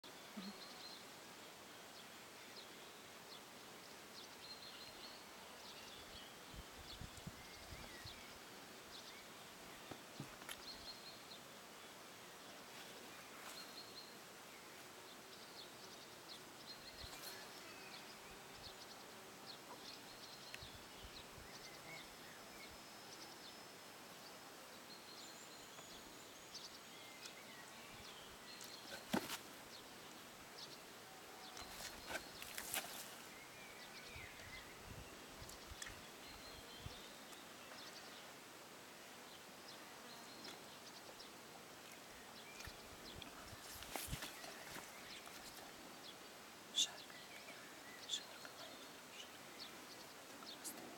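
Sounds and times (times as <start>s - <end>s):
faint bird chirps: 0.0s - 1.0s, 42.2s - 50.9s.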